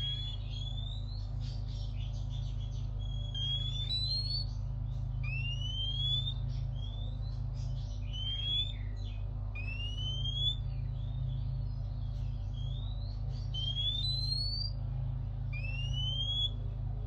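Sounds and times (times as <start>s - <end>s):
bird singing rising whistles: 0.0s - 1.2s, 3.0s - 4.6s, 5.2s - 7.2s, 8.0s - 10.8s, 12.5s - 14.8s, 15.5s - 16.6s
steady low hum: 0.0s - 17.0s.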